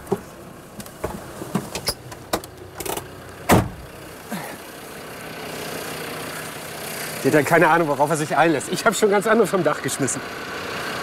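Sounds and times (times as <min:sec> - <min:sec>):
engine running: 0:00.0 - 0:11.0
knocks on metal vehicle body: 0:03.5 - 0:03.8
heavy thump: 0:03.5 - 0:03.9.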